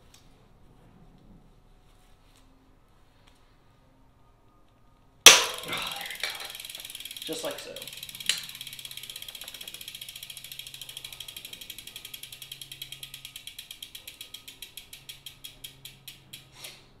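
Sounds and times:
bicycle freewheel ratchet clicking: 5.3s - 17.0s.

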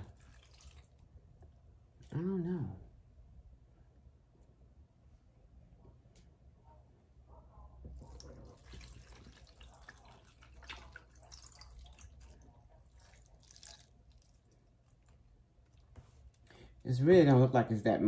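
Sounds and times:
broth trickling and splashing into pot: 0.0s - 1.2s, 8.0s - 16.6s.

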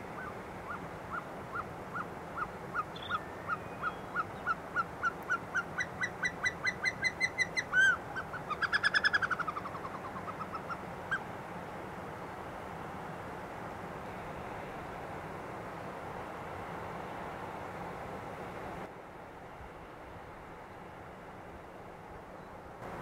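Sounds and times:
bird whistling song: 2.4s - 10.7s.

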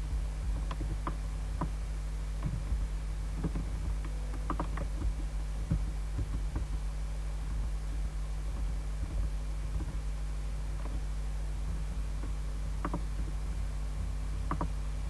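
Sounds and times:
low electrical hum: 0.0s - 15.0s
computer mouse clicks: 12.2s - 13.3s, 14.5s - 14.8s.

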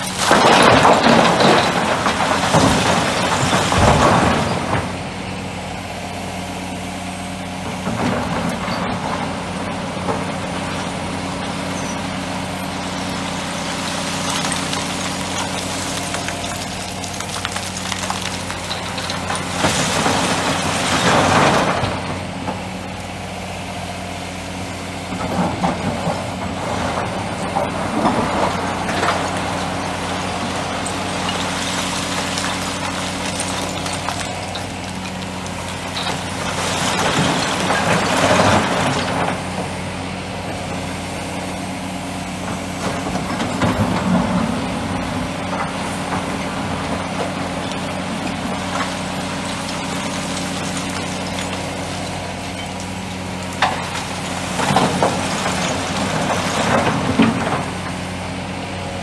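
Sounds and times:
rock crashing into truck bed: 0.0s - 5.1s, 25.4s - 39.6s, 42.8s - 57.9s
large diesel engines running: 0.0s - 59.0s
bucket scraping into rock pile: 27.7s - 39.5s.

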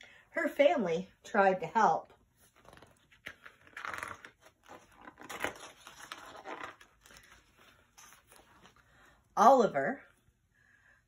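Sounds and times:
book pages turning: 2.1s - 9.0s.

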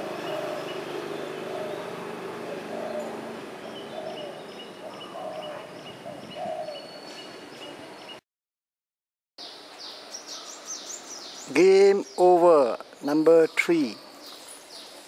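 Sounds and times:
doves cooing: 0.0s - 7.8s.

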